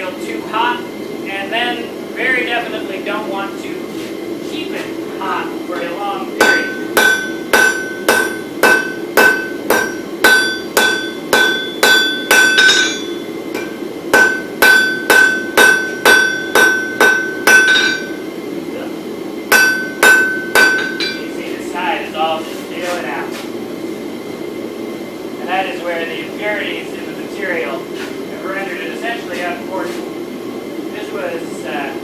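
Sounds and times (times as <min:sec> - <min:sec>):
hammer striking metal on anvil: 0:05.8 - 0:18.2, 0:19.5 - 0:21.3.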